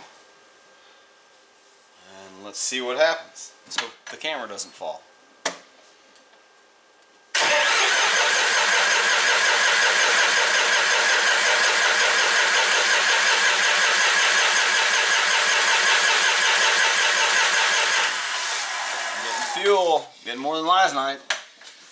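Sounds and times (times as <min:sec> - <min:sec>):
diesel engine cranking on starter: 0:07.4 - 0:19.5.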